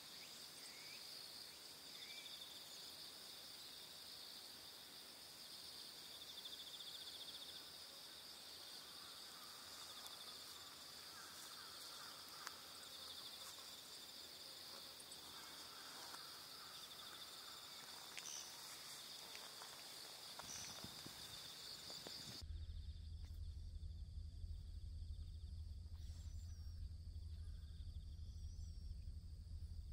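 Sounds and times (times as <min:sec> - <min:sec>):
insects chirring: 0:00.0 - 0:29.9
low steady rumble: 0:22.4 - 0:29.9.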